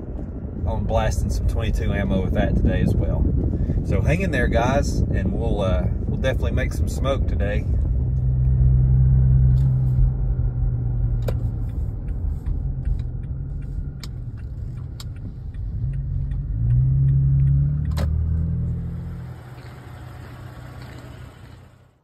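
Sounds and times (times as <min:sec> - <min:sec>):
road noise: 0:00.0 - 0:22.0
truck engine hum: 0:06.0 - 0:22.0.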